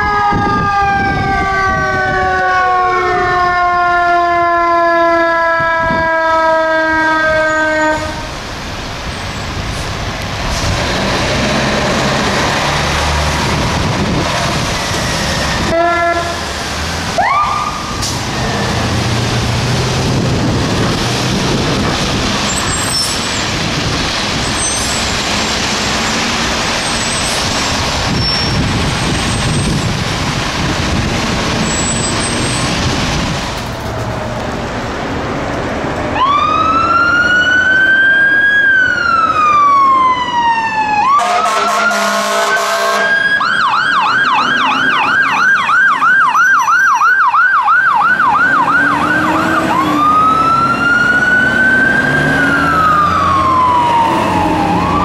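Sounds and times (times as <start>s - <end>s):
fire truck engine and road noise: 0.0s - 55.0s
horn blast: 15.7s - 16.5s, 41.1s - 43.3s
siren chirp: 17.2s - 18.8s, 36.2s - 55.0s
siren winding up and falling: 17.2s - 18.9s, 43.1s - 55.0s.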